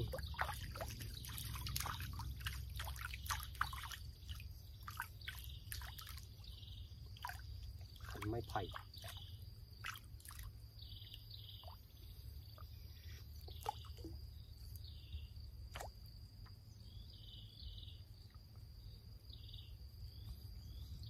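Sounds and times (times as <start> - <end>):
water drips and clicks: 0.0 - 4.0
high insect drone: 0.0 - 21.0
insect chirps: 0.0 - 21.0.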